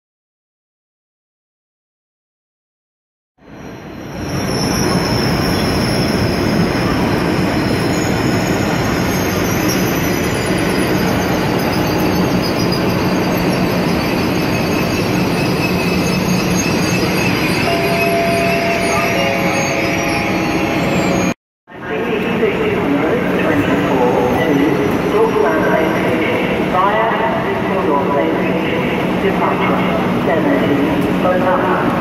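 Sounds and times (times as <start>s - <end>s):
wheel squeal: 4.2s - 21.3s.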